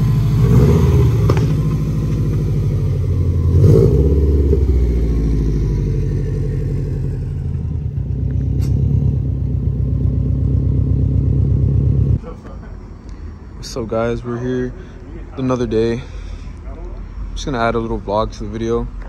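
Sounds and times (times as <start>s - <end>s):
car engine revving: 0.0s - 12.2s.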